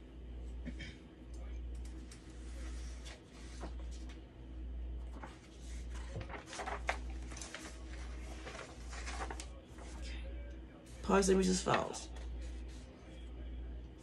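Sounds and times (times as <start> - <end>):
paper rustling: 1.8 - 4.3, 5.0 - 10.2, 11.0 - 13.1.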